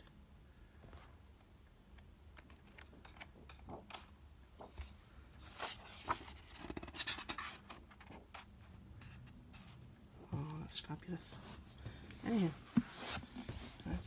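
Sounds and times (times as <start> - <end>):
book pages turning: 2.0 - 9.8, 12.3 - 14.0.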